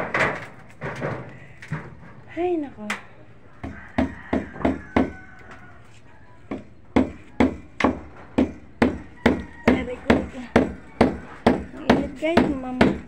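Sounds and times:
hammer striking wood: 0:03.6 - 0:05.2, 0:06.5 - 0:13.0.

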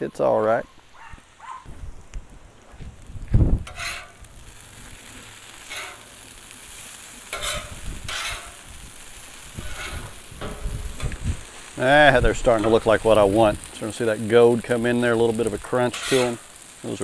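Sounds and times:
food sizzling on griddle: 0:00.0 - 0:17.0
metal spatula scraping steel: 0:03.6 - 0:04.2, 0:05.6 - 0:06.2, 0:07.2 - 0:08.7, 0:09.5 - 0:11.2, 0:15.8 - 0:16.5.

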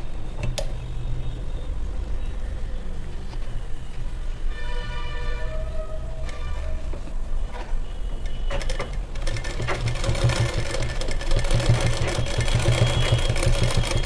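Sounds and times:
sewing machine stitching: 0:08.2 - 0:14.0.

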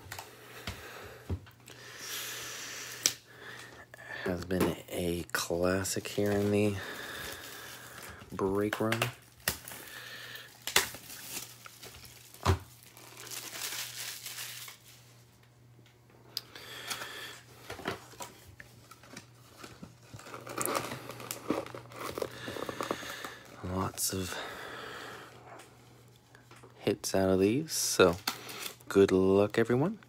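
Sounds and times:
shrink wrap crinkling and tearing: 0:05.3 - 0:15.2, 0:16.7 - 0:24.5.

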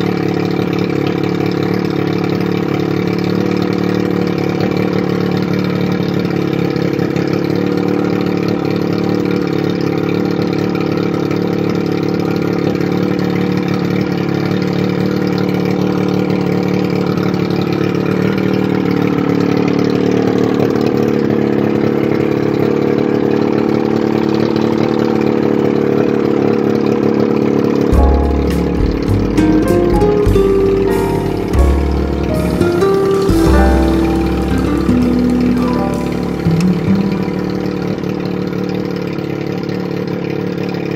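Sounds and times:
outboard motor idling: 0:00.0 - 0:27.9, 0:37.4 - 0:40.9
music: 0:27.9 - 0:39.1.

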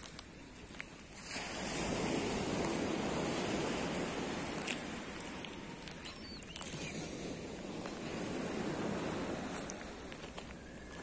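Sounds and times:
sea surf on beach: 0:00.0 - 0:11.0.

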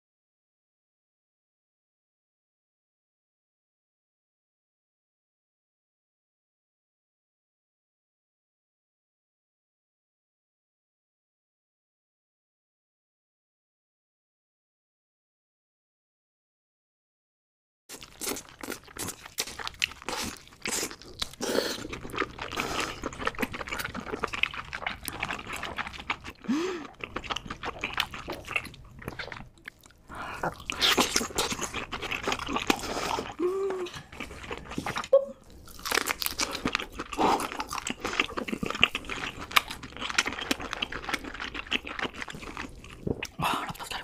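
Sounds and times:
person chewing and crunching: 0:17.9 - 0:44.0.

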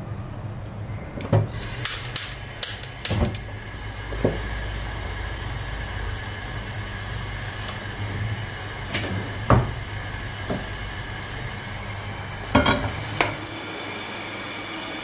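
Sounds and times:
gas flame rumbling: 0:00.0 - 0:15.0
gas stove igniter clicks: 0:01.8 - 0:03.5.

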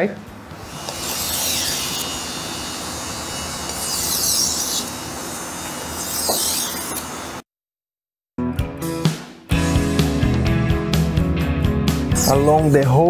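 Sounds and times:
knife scraping on whetstone: 0:00.8 - 0:02.5, 0:03.3 - 0:07.1.

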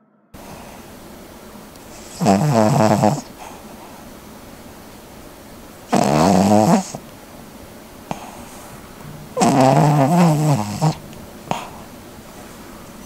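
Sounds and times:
dog snoring: 0:01.9 - 0:04.0, 0:05.8 - 0:07.1, 0:08.0 - 0:12.6.

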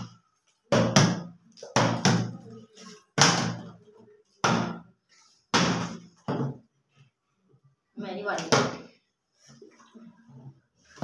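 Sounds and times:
bottles thudding on wooden table: 0:06.3 - 0:06.6.

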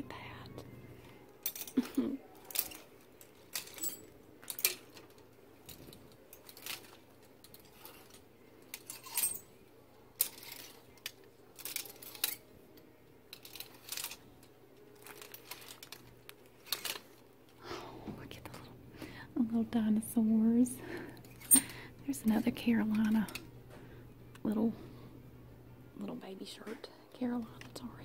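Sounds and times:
plastic hangers clacking on rack: 0:01.4 - 0:09.5, 0:10.1 - 0:12.5, 0:13.3 - 0:17.2, 0:21.2 - 0:23.5.

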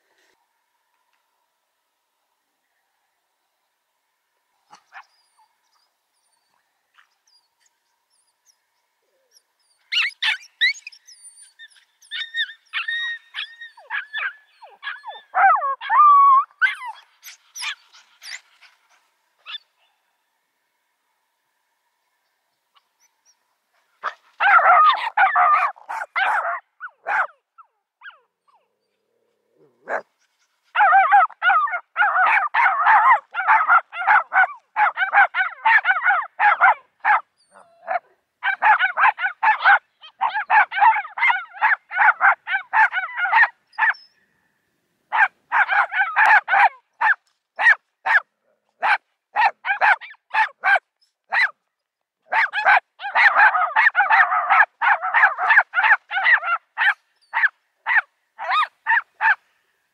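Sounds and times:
small dogs barking: 0:24.0 - 0:27.4, 0:29.6 - 0:30.1, 0:30.7 - 0:44.1, 0:45.1 - 0:51.6, 0:52.3 - 0:59.4.

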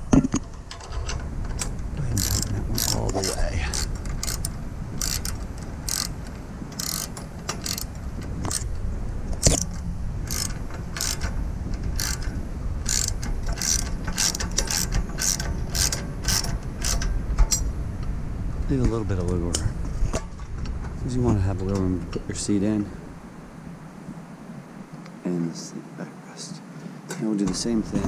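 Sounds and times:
ratchet wrench clicking: 0:01.6 - 0:08.7, 0:09.4 - 0:17.7.

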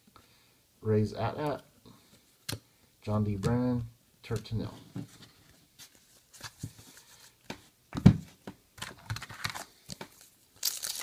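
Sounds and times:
cards tapping and rustling: 0:04.3 - 0:11.0.

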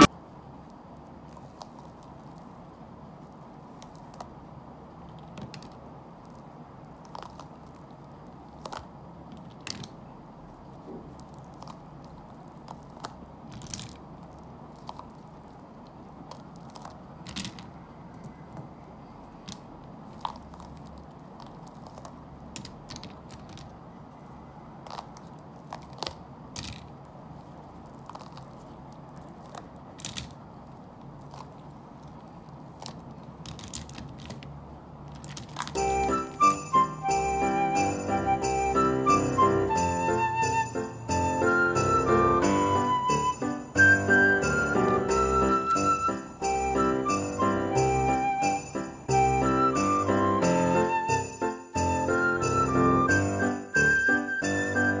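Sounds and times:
tiles clicking and clacking: 0:16.3 - 0:17.8, 0:32.8 - 0:35.8.

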